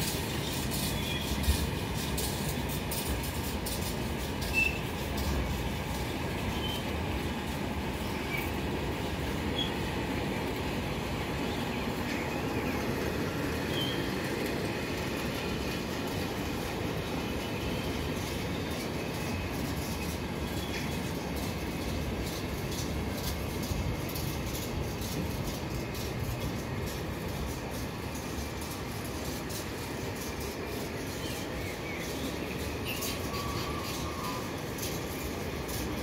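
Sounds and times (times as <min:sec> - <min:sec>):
train wheels rumbling on rails: 0:00.0 - 0:36.0
high squeaks: 0:03.0 - 0:05.5.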